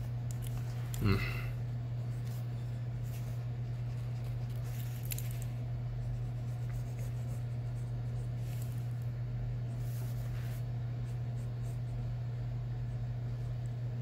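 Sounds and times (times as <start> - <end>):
steady low hum: 0.0 - 14.0
pen scratching on paper: 6.0 - 8.4.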